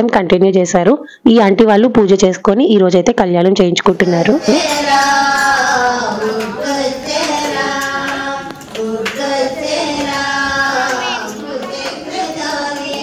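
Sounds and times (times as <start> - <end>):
high voices singing: 4.0 - 13.0
hand clapping: 4.7 - 13.0.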